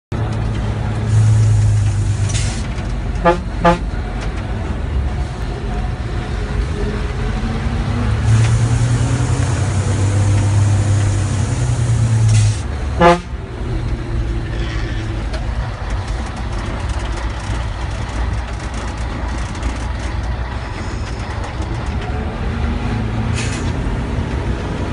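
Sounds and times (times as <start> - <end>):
truck diesel engine droning: 0.1 - 24.9
truck horn toots: 3.2 - 4.0, 8.4 - 13.4.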